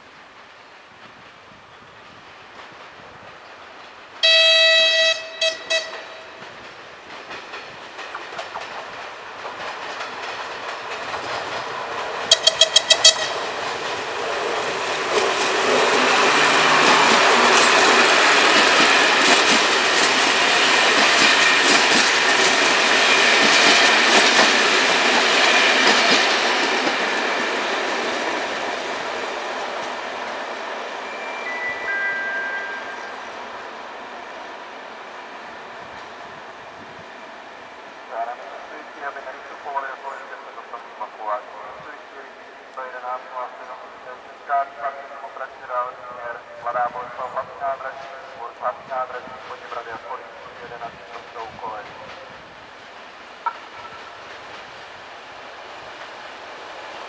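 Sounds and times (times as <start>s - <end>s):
locomotive horn blasts: 4.2s - 6.4s, 12.3s - 13.5s
train wheels clattering over rails: 5.7s - 30.9s, 50.6s - 57.0s.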